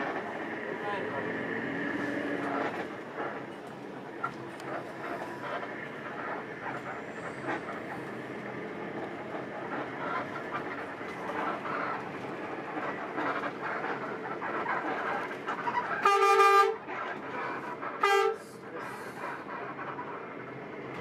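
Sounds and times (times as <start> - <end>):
bus interior running noise: 0.0 - 21.0
bus horn: 15.7 - 16.9, 18.0 - 18.7.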